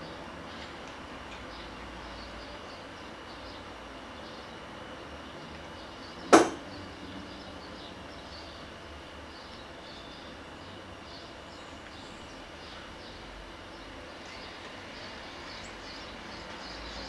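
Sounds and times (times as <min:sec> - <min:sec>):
fists thumping on a desk: 0:06.4 - 0:06.6.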